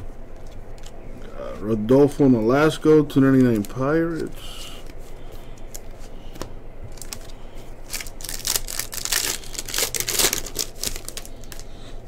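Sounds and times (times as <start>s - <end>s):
foil wrapper crinkling and tearing: 3.3s - 4.9s, 6.9s - 11.9s.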